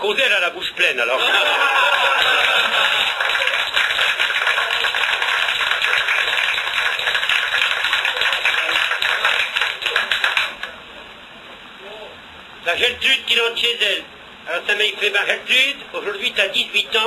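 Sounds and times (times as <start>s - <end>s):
audience laughing: 1.1s - 4.9s
audience applauding: 1.4s - 10.8s.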